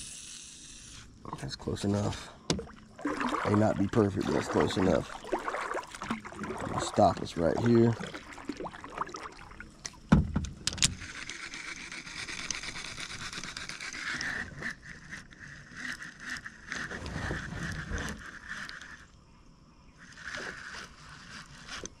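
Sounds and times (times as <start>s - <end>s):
fishing reel whirring: 0.0s - 1.2s, 10.7s - 19.1s, 20.0s - 22.0s
thump: 10.1s - 10.5s.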